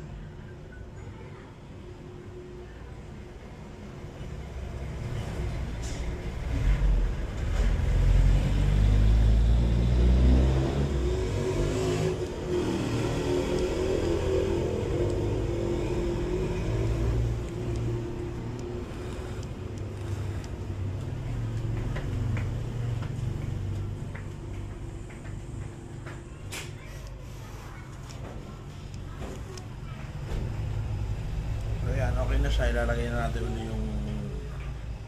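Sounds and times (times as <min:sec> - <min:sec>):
vehicle engine running: 0:06.5 - 0:26.0.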